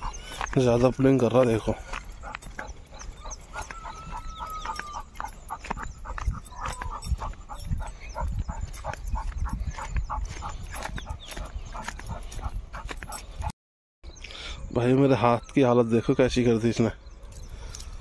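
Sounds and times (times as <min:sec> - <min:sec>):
dog panting: 0:00.0 - 0:13.5
dog whining: 0:02.2 - 0:08.3.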